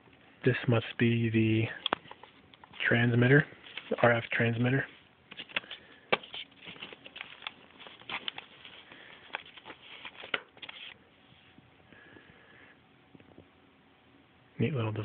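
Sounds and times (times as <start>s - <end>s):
plastic handling clicks and rustles: 1.7s - 11.0s.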